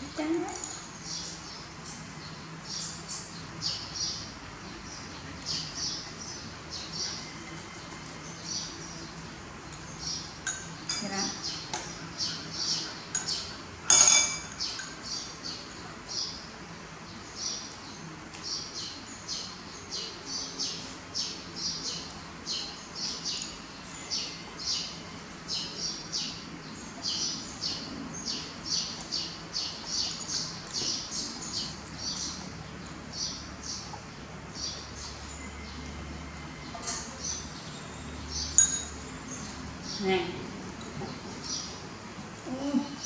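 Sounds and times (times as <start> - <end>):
metal spoon clinking against bowl: 10.4 - 11.4, 13.1 - 15.0, 38.5 - 39.1.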